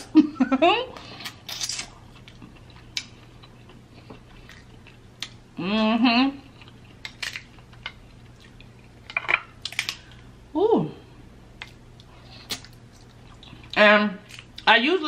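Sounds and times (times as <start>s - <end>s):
chewing: 1.2s - 5.4s, 6.4s - 10.0s, 11.6s - 14.7s
woman humming: 5.6s - 6.5s.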